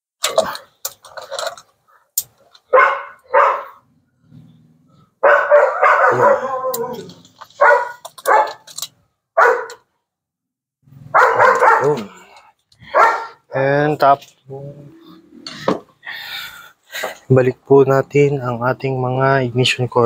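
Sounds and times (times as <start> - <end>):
dog barking: 2.7 - 3.8, 5.2 - 8.7, 9.4 - 9.8, 11.1 - 12.2, 12.9 - 13.5
dog crying: 5.2 - 8.6, 9.4 - 9.8, 11.1 - 12.2, 12.9 - 13.4.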